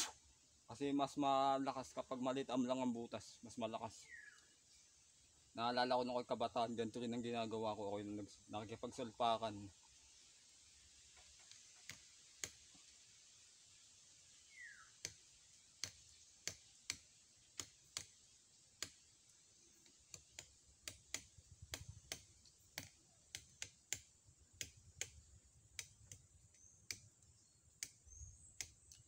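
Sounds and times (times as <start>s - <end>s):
knife chopping tree trunk: 15.8s - 19.1s, 19.8s - 27.1s.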